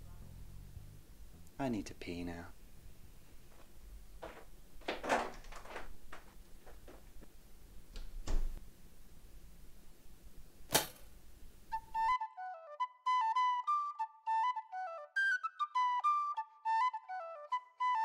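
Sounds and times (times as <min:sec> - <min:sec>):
sharp smack: 0:10.7 - 0:11.1
flute-like wind instrument melody: 0:11.7 - 0:18.0.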